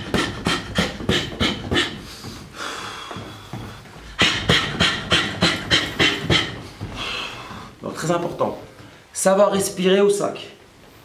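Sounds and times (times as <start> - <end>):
sharp hissing exhalations: 6.9 - 7.8.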